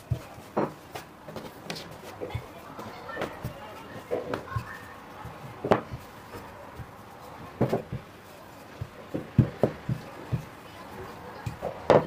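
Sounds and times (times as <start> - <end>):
rolling pin rolling dough: 0.0 - 12.0
wood knocking on wood: 0.6 - 1.9, 5.3 - 8.1, 8.8 - 10.6, 11.4 - 12.0.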